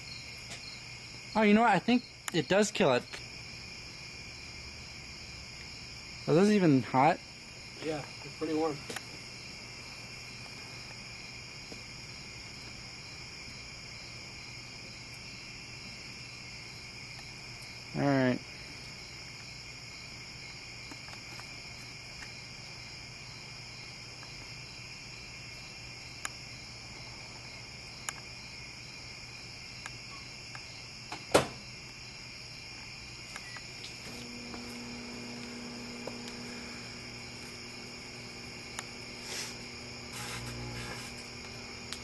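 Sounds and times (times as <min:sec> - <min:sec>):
sharp knock: 0:31.3 - 0:31.6
high-pitched background whine: 0:33.4 - 0:42.0
microwave oven humming: 0:34.2 - 0:42.0.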